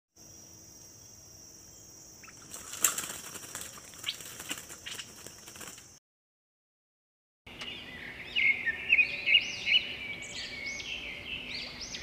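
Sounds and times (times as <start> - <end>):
bird wings flapping in cage: 2.3 - 6.0.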